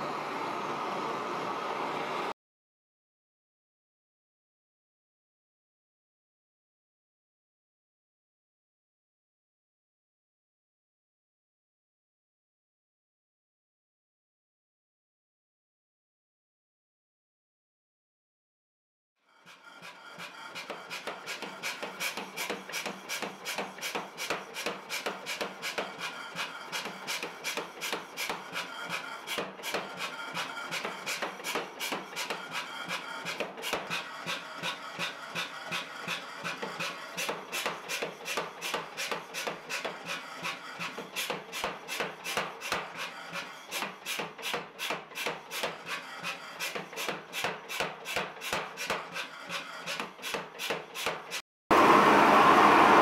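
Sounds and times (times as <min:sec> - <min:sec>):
power hammer striking steel: 0:20.2 - 0:51.4.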